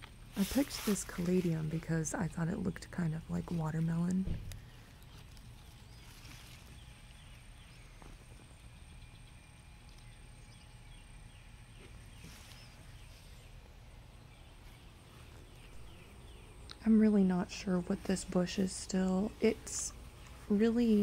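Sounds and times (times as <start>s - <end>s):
steady low rumble: 0.0s - 21.0s.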